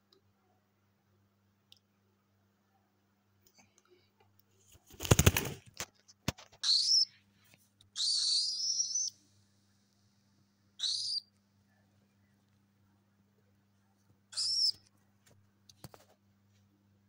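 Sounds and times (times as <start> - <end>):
bird wings flapping: 4.7 - 6.5
high-pitched bird calls: 6.6 - 7.2, 8.0 - 9.2, 10.8 - 11.3, 14.3 - 14.8.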